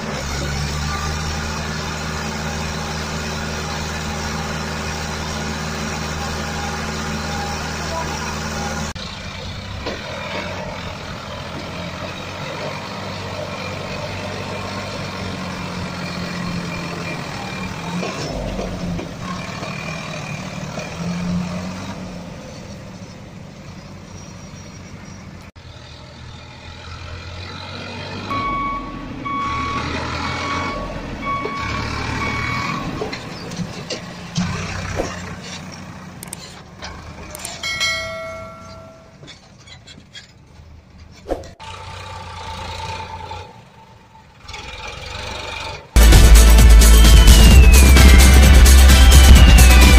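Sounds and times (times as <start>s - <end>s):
heavy vehicle engine running: 0.0s - 49.9s
reversing beeper: 28.2s - 33.2s, 46.0s - 49.9s.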